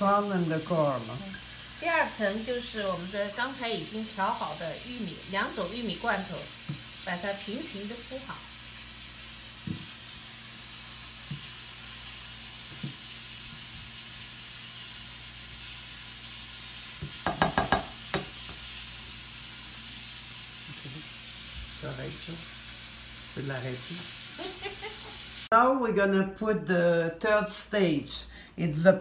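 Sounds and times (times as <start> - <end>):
steady hiss: 0.0 - 25.5
spatula tapping pot: 17.0 - 18.5.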